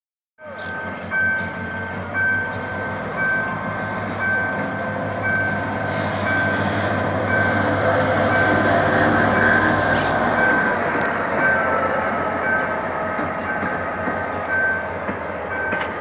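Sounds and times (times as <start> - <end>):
crossing warning signal beeps: 0.4 - 16.0
diesel locomotive engine rumble: 0.4 - 16.0.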